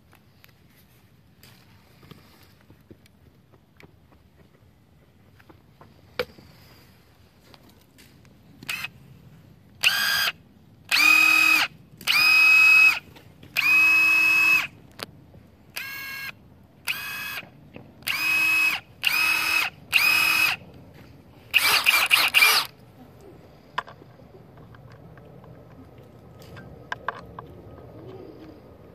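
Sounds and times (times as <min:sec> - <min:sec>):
impact tool motor whine: 0:08.6 - 0:08.9, 0:09.8 - 0:10.3, 0:10.9 - 0:13.0, 0:13.6 - 0:14.7, 0:15.8 - 0:20.6, 0:21.5 - 0:22.7.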